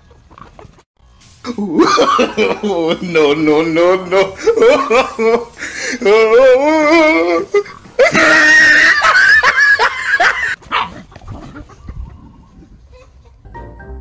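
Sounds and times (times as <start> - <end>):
dog barking and growling: 10.6 - 11.2.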